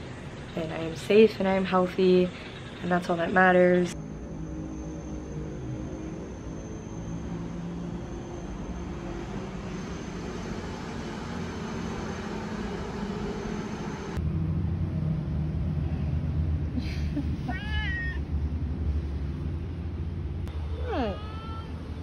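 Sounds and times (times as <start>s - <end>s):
steady low rumble: 8.0s - 20.8s
cat meowing: 17.5s - 18.3s, 20.7s - 22.0s.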